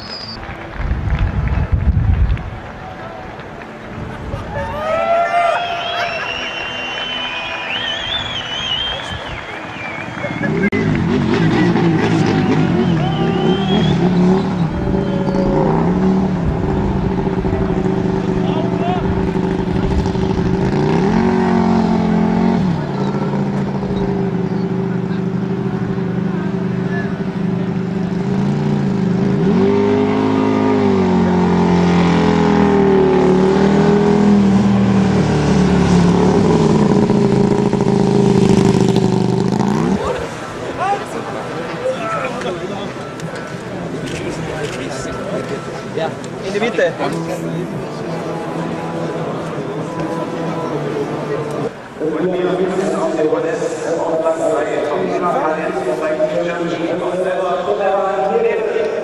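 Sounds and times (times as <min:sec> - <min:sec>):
motorcycle engines revving: 0:07.8 - 0:59.0.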